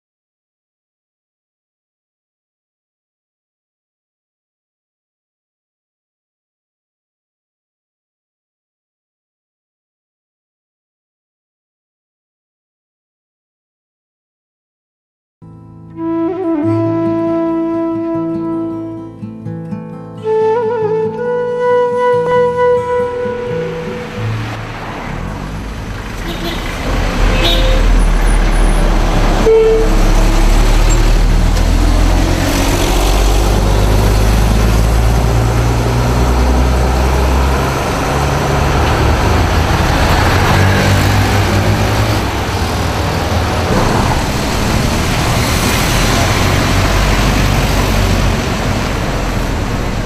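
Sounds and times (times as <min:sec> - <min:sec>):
tyre and road noise: 0:21.2 - 0:50.0
passing vehicles engine rumble: 0:21.6 - 0:50.0.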